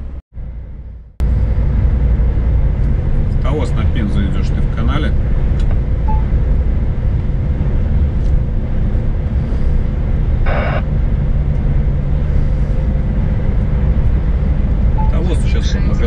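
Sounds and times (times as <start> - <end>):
truck engine and road drone: 0.0 - 16.0.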